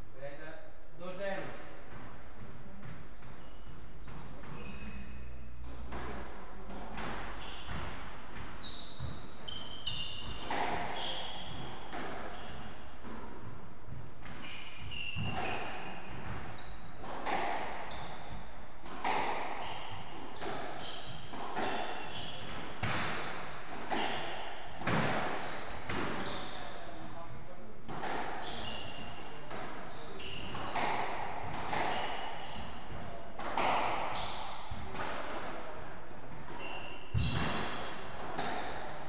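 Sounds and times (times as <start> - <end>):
squash ball hitting rackets and walls: 1.7 - 39.0
shoes squeaking on wooden floor: 3.2 - 5.3, 7.3 - 12.7, 14.3 - 22.9, 25.0 - 26.8, 28.4 - 34.8, 36.4 - 38.8.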